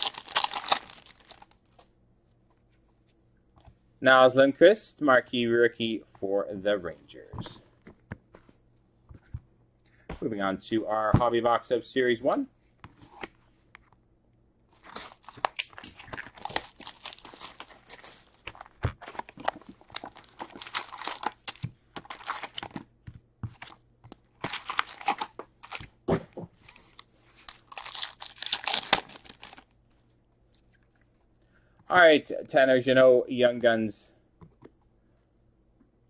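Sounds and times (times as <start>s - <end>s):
foil card packs crinkling and tearing: 0.0s - 1.6s, 14.8s - 22.9s, 23.5s - 25.9s, 26.7s - 29.7s.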